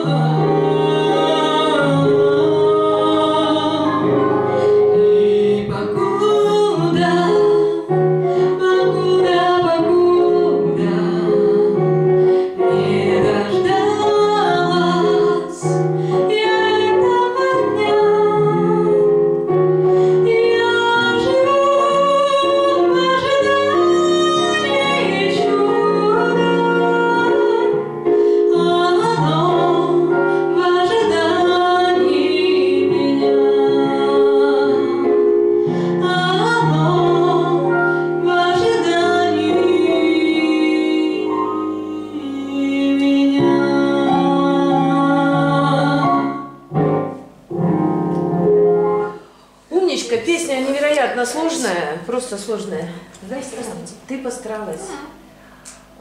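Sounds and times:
woman singing a pop song: 0.0 - 4.2, 4.8 - 19.1, 20.2 - 35.3, 35.9 - 46.4
piano accompaniment: 0.0 - 56.0.

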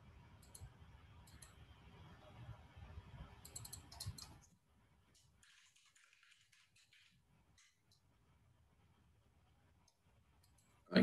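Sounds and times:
computer mouse clicks: 0.4 - 1.6, 3.4 - 4.5.

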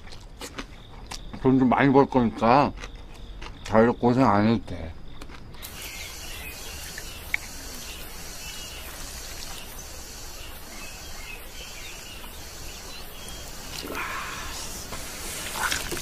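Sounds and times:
insects chirping: 0.0 - 16.0.

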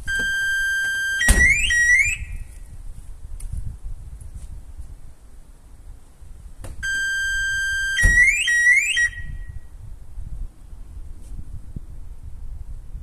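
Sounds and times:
car alarm siren whooping: 0.1 - 2.4, 6.8 - 9.5.

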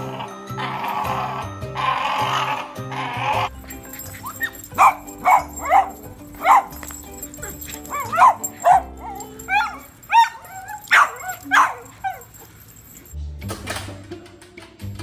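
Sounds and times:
background music: 0.0 - 15.0
small dog yipping and barking: 3.6 - 13.1.

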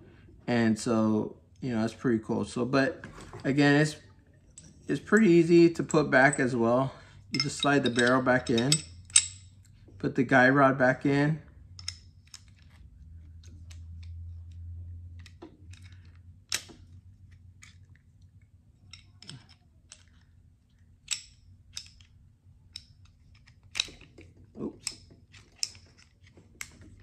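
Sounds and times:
pistol parts clicking: 7.3 - 9.8, 11.6 - 27.0.

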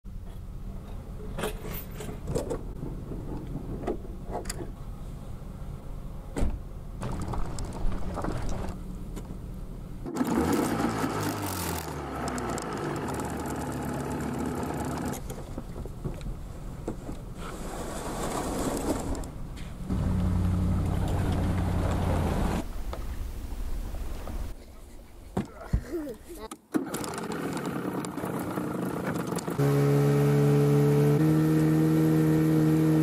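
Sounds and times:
rough engine with shifting pitch: 10.0 - 15.2, 19.8 - 22.7, 27.6 - 33.0
engine running steadily: 19.5 - 22.6, 28.6 - 33.0.

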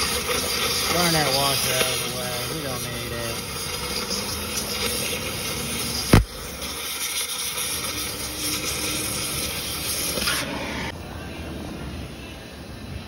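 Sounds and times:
cutting torch hissing: 0.0 - 11.0
sharp pop: 6.1 - 6.4.

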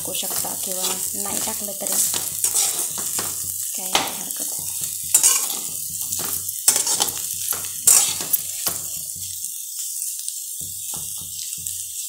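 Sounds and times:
potatoes sizzling in oil: 0.0 - 12.0
steel spatula scraping a pan: 0.1 - 9.4.

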